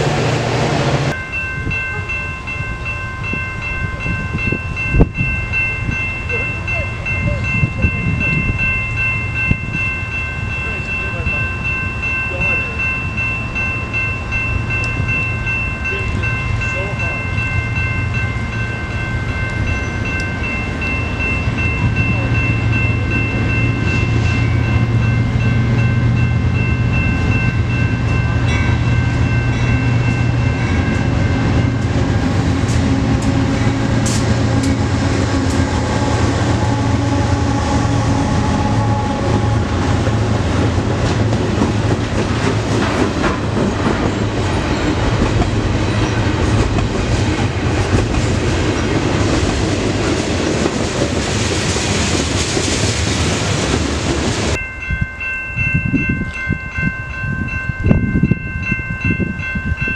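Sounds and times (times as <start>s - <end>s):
clatter of passing train cars: 0.0s - 59.9s
train engine drone: 0.0s - 59.9s
wheels rumbling on rail: 0.0s - 59.9s
chord of high tones: 1.1s - 40.5s.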